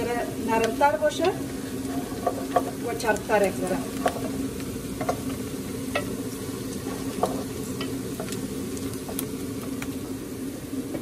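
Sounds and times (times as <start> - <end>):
onions sizzling in oil: 0.0 - 11.0
wooden spoon tapping and scraping pot: 0.6 - 6.1, 6.7 - 8.4.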